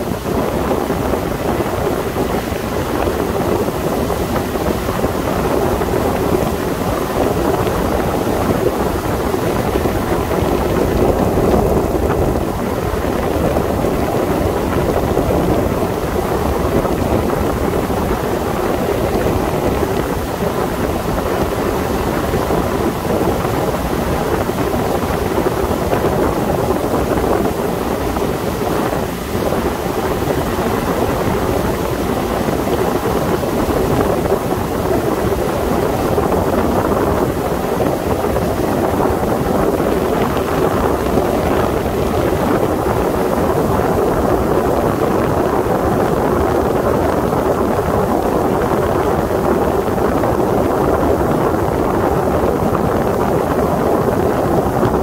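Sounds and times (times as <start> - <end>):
boat engine running: 0.0 - 55.0
water rushing along hull: 0.0 - 55.0
wind buffeting microphone: 0.0 - 55.0.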